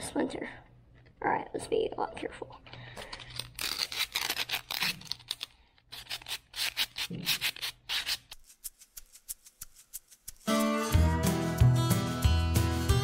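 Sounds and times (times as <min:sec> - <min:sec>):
sandpaper scratching on wood: 0:05.9 - 0:10.6
guitar music: 0:10.5 - 0:13.0.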